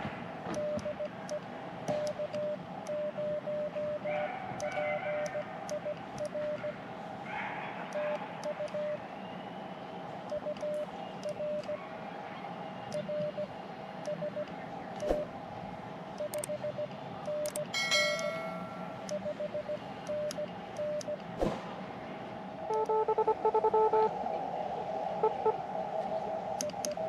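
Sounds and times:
clicks: 0.5 - 6.7, 7.9 - 8.9, 10.2 - 11.8, 16.2 - 21.4, 26.6 - 27.0
morse code beeping tone: 2.1 - 4.1, 4.7 - 6.8, 14.1 - 15.2, 16.2 - 21.2, 22.7 - 24.1.

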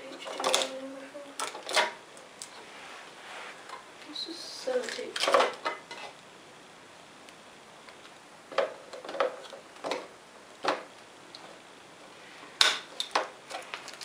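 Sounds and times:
plastic clicks and knocks: 8.5 - 10.9.

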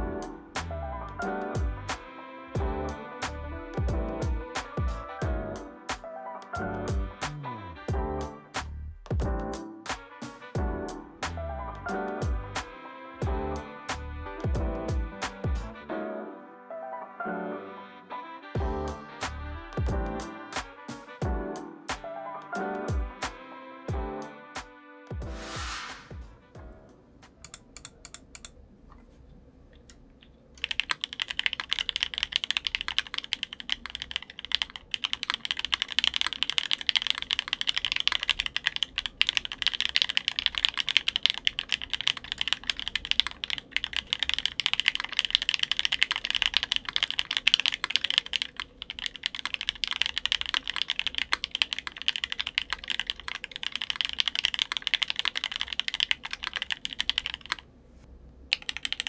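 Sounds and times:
mechanical keyboard typing: 27.4 - 28.5, 30.6 - 57.6, 58.5 - 59.0.

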